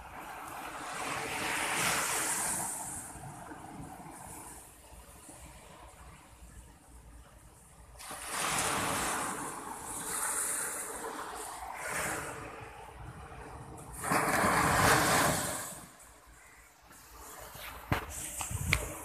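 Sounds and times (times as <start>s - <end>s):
sea surf breaking on beach: 0.0s - 6.0s, 8.0s - 16.0s.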